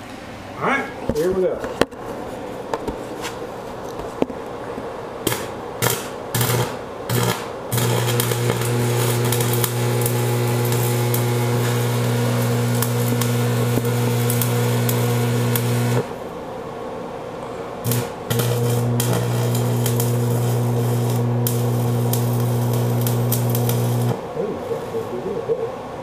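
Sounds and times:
welding arc sputters: 0:05.2 - 0:16.2, 0:17.8 - 0:24.2
welding arc buzzing and crackling: 0:05.2 - 0:16.3, 0:17.5 - 0:24.2.

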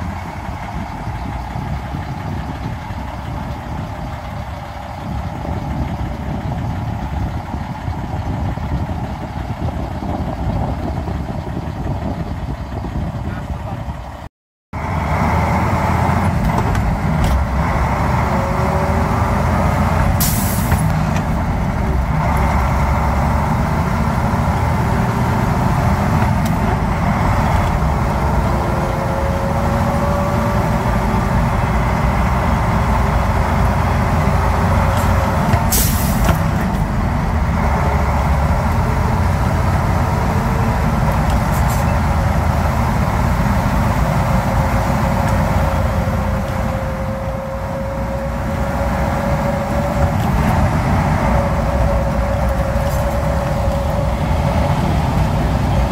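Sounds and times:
diesel truck engine running: 0:00.0 - 0:55.9
air brake hissing: 0:20.2 - 0:20.9, 0:35.7 - 0:36.3.

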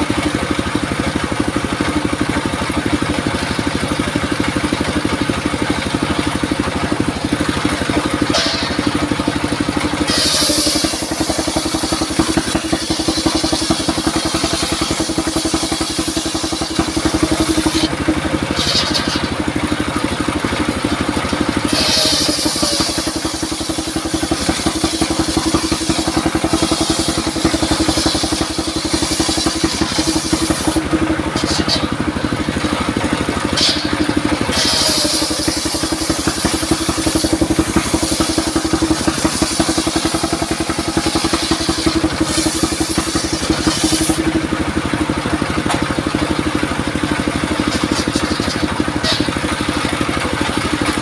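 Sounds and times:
diesel engine running: 0:00.0 - 0:51.0
saw blade cutting wood: 0:00.0 - 0:51.0.

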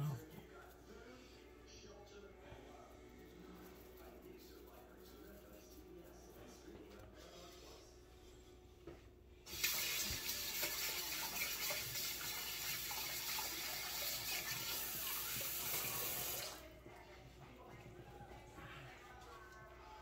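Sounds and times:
tap water running into sink: 0:09.5 - 0:16.6.

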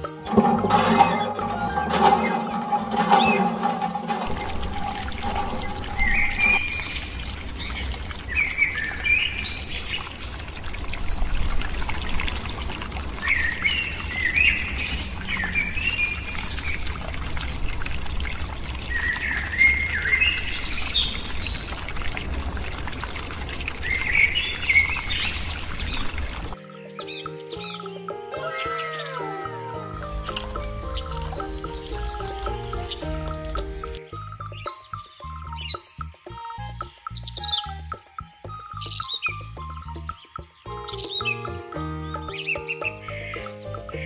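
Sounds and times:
water trickling into a pool: 0:00.0 - 0:44.0
birds chirping: 0:23.8 - 0:44.0.

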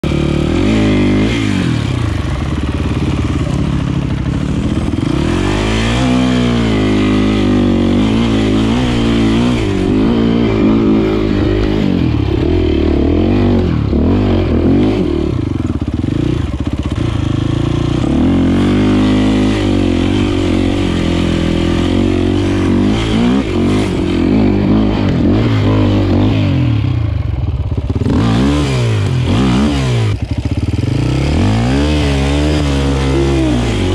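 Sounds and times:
motorcycle engine revving: 0:00.0 - 0:33.9.

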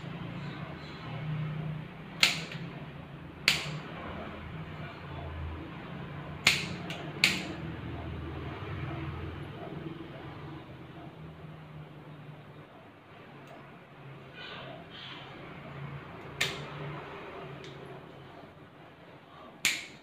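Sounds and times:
nail clipper snipping: 0:02.2 - 0:02.6, 0:03.4 - 0:03.8, 0:06.4 - 0:07.6, 0:16.3 - 0:16.7, 0:19.6 - 0:20.0.

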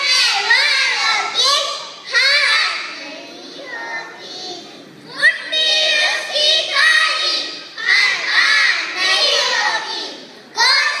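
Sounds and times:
children's choir singing: 0:00.0 - 0:11.0.

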